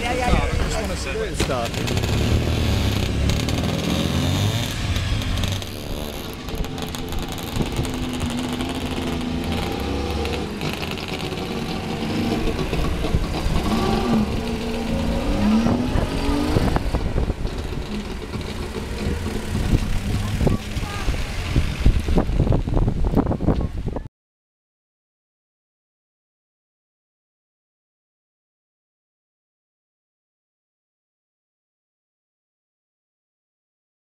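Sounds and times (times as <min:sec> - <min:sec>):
small car engine revving: 0:01.4 - 0:22.4.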